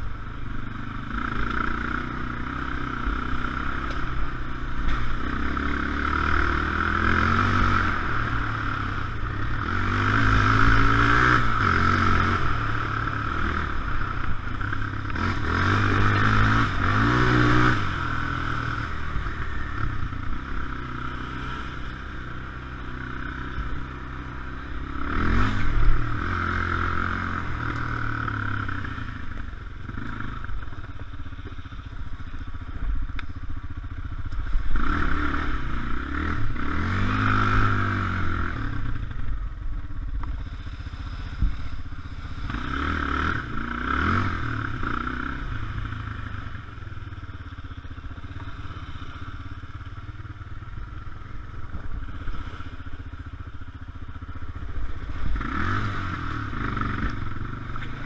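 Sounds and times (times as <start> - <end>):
quad engine revving: 0.7 - 30.7, 34.2 - 39.2, 40.3 - 46.7, 53.6 - 58.0.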